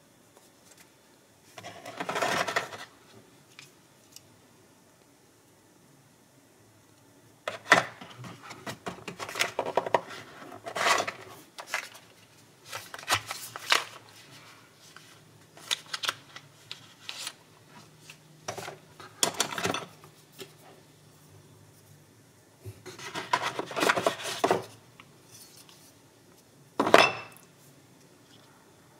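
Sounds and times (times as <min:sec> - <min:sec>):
cardboard and packaging rustling: 0:01.5 - 0:03.0, 0:07.5 - 0:20.6, 0:22.8 - 0:26.0.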